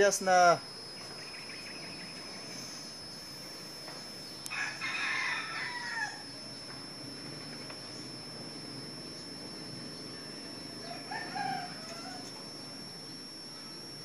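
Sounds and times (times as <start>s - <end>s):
rooster crowing: 4.5s - 6.3s, 10.8s - 12.5s.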